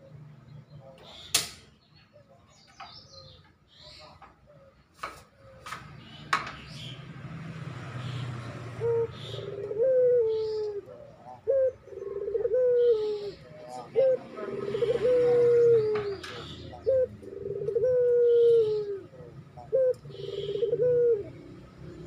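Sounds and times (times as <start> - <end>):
dove cooing: 8.2 - 22.0.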